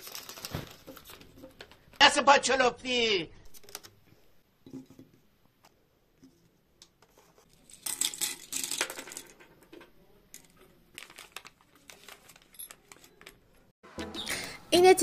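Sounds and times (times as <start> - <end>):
plastic wrappers crinkling: 0.0 - 1.9, 10.4 - 13.6.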